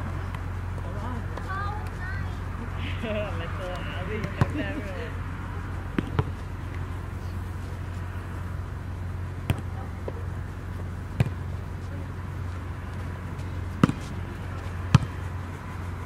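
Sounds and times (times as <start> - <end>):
steady low hum: 0.0 - 16.0
volleyball smacks: 11.2 - 11.4, 13.8 - 14.2.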